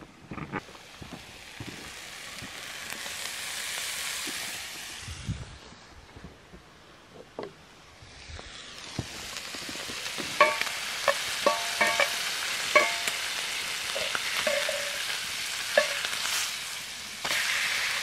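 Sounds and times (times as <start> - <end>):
food sizzling in pan: 0.8 - 5.4, 8.0 - 18.0
metal utensil clinking on pan: 10.4 - 13.3, 13.9 - 15.1, 15.7 - 16.1.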